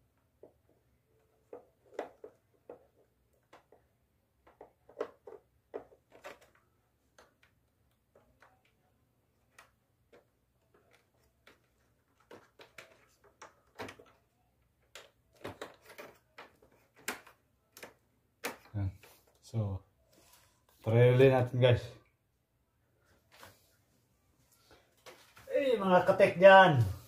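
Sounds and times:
plastic parts clicking and tapping: 0.1 - 19.4.

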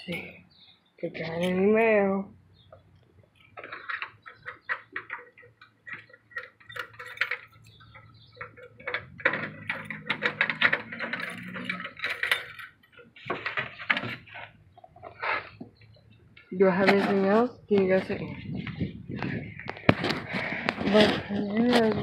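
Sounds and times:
metal mailbox door opening: 6.0 - 12.8
keys jangling: 6.0 - 13.0.

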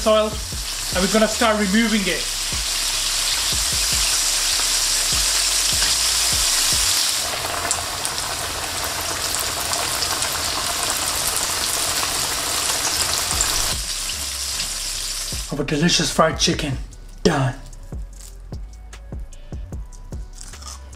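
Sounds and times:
chicken frying in hot oil: 0.0 - 15.5.

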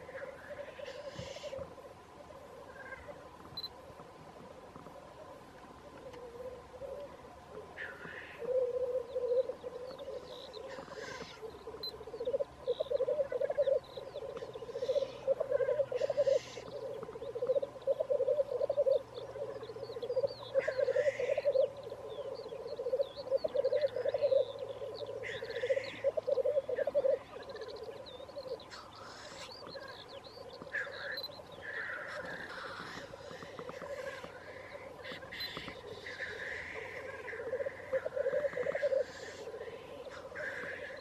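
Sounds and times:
grouse hoarse hissing calls: 0.0 - 1.7, 7.8 - 13.8, 14.6 - 19.6, 20.5 - 21.7, 25.2 - 27.8, 28.6 - 29.9, 30.7 - 41.0
grouse bubbling cooing song: 5.1 - 41.0.

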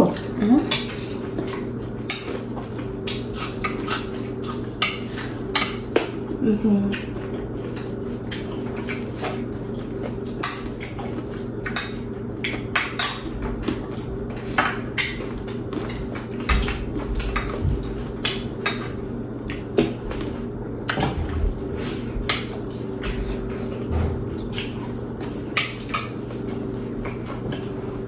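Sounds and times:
steady low hum: 0.0 - 28.0
utensil clinking against dish: 4.8 - 6.1, 11.7 - 13.8.

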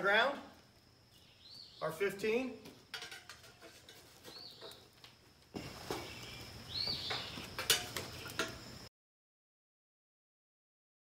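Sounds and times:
bird chirping: 1.1 - 2.4, 4.2 - 4.9, 5.6 - 8.5
charcoal set down on concrete: 2.6 - 8.8
metal tongs clinking: 2.9 - 4.0, 7.6 - 8.6.

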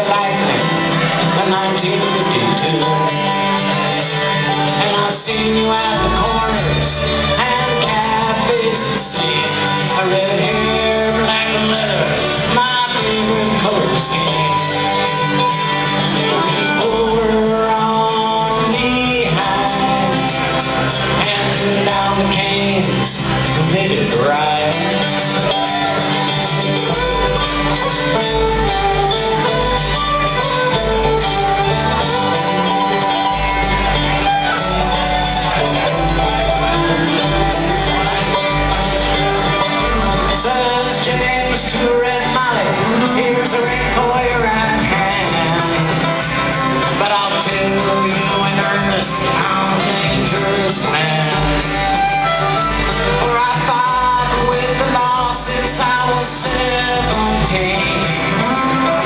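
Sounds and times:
bluegrass band playing: 0.0 - 59.0
upright bass line: 0.0 - 59.0.

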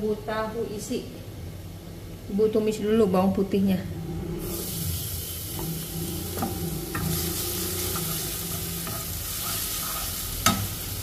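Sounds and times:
garlic sizzling in hot oil: 4.4 - 11.0.

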